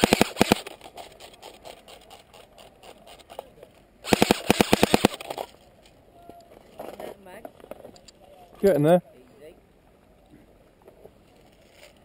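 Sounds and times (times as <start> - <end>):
airsoft rifle rapid burst: 0.0 - 0.8, 4.0 - 5.4.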